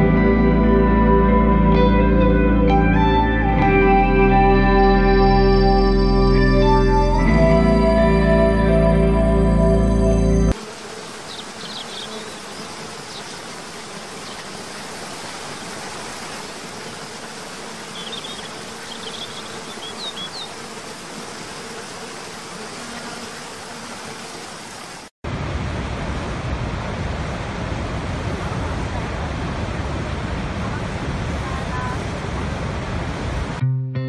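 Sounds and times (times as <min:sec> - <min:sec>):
bird chirps: 0:11.3 - 0:13.4, 0:17.9 - 0:20.5.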